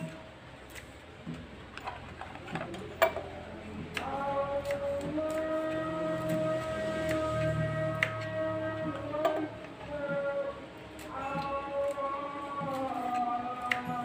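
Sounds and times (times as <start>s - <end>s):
background music: 3.0s - 14.0s.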